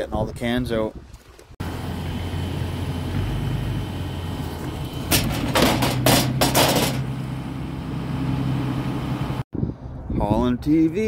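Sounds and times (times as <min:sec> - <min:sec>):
vehicle engine idling: 0:01.6 - 0:09.4
car radio clattering and scraping: 0:05.1 - 0:07.0.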